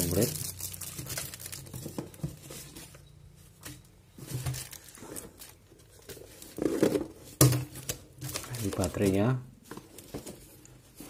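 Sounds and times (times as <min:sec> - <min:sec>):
packaging rustling and crinkling: 0:00.0 - 0:03.0, 0:04.1 - 0:11.0.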